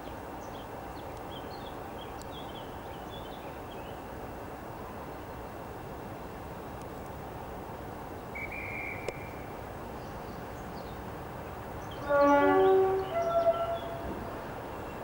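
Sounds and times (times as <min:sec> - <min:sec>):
two-tone locomotive horn: 0:12.0 - 0:14.3.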